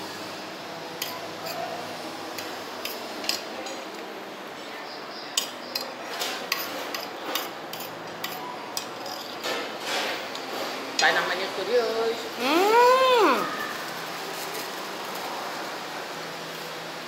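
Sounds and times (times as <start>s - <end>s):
metal spoon clinking on a plate: 1.0s - 1.6s, 6.5s - 9.5s.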